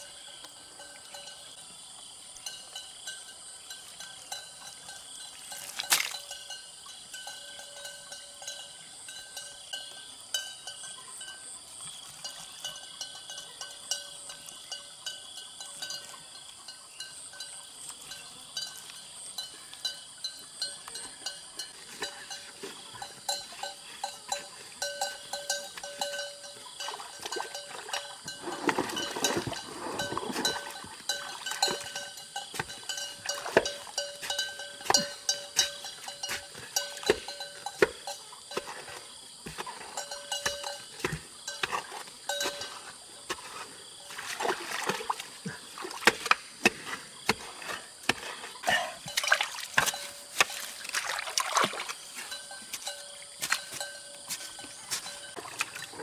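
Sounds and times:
light metallic clinks: 2.4s - 38.7s, 40.0s - 42.9s, 52.0s - 55.8s.

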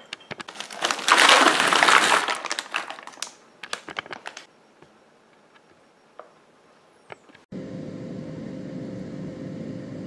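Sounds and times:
beans rattling into foil pan: 0.5s - 4.4s.

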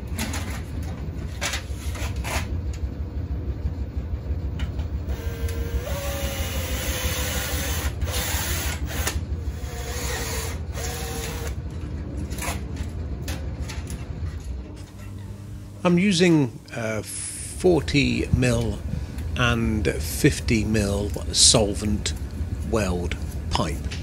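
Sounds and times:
low hum: 0.0s - 24.0s
drill motor whining: 5.1s - 11.6s.

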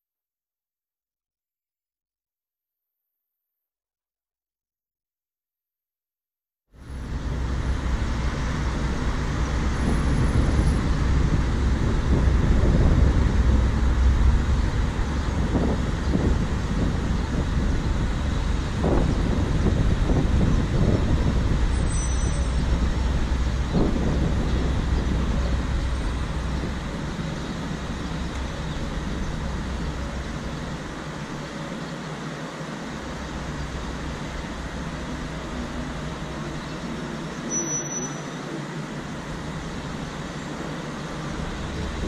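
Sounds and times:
traffic rumble of engines and tyres: 6.8s - 42.0s.

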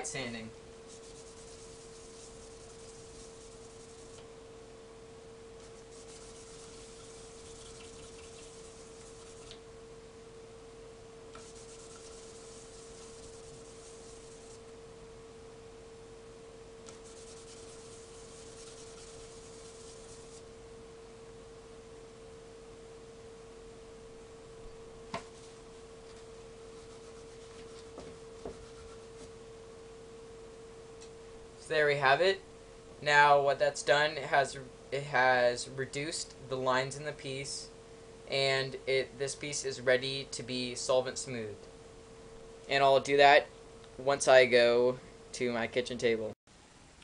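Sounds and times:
steady hum: 0.0s - 47.0s
plastic rubbing on wet sandpaper: 0.9s - 4.2s, 5.6s - 9.6s, 11.4s - 14.6s, 16.9s - 20.4s, 26.8s - 27.9s.

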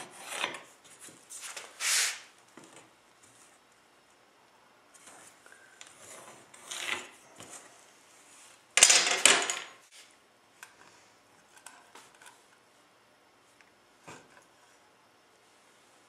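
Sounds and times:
loud scraping rub: 1.4s - 2.3s.

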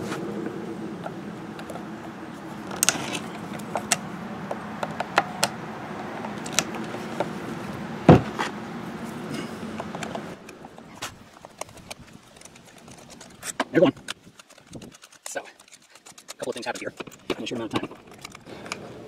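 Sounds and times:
dull thump: 8.1s - 8.5s.

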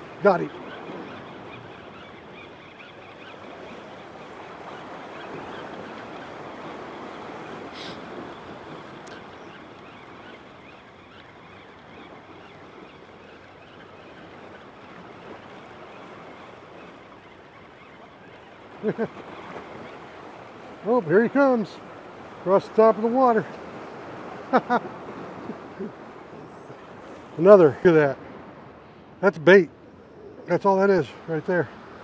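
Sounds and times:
ocean surf washing against rocks: 0.0s - 1.6s, 3.2s - 10.7s, 18.5s - 29.7s, 30.5s - 32.0s.

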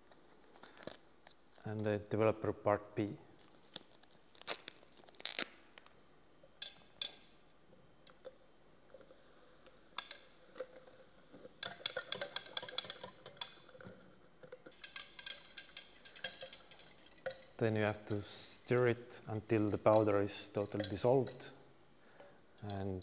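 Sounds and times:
clicks and rustles: 9.9s - 18.2s
stirring rod clinking in cylinder: 10.0s - 21.5s.

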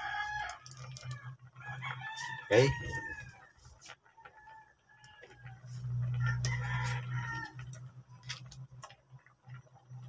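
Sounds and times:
rooster crowing: 0.0s - 3.5s, 4.2s - 7.7s.

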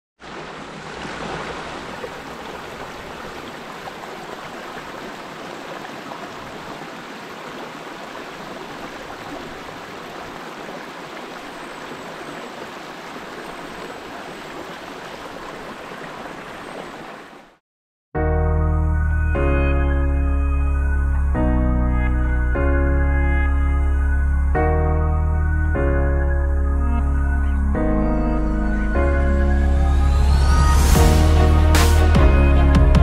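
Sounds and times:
flowing water rushing: 0.2s - 17.6s.

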